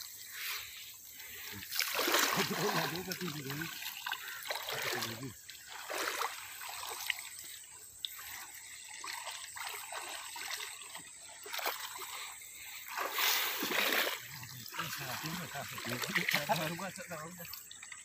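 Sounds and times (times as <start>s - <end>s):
muddy water splashing and sloshing: 0.0s - 18.0s.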